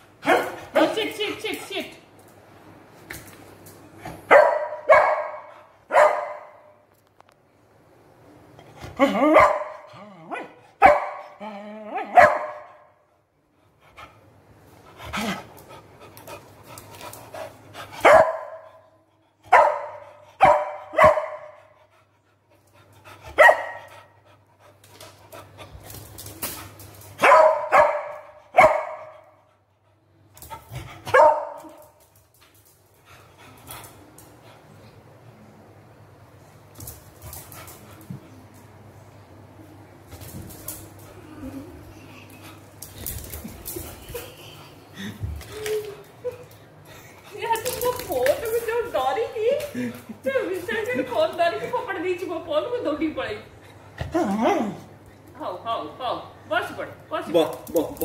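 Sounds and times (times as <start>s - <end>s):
dog barking: 0.2s - 0.6s, 4.3s - 6.7s, 9.3s - 11.4s, 12.0s - 12.8s, 18.0s - 18.8s, 19.5s - 21.6s, 23.4s - 23.8s, 27.2s - 29.2s, 31.1s - 31.7s.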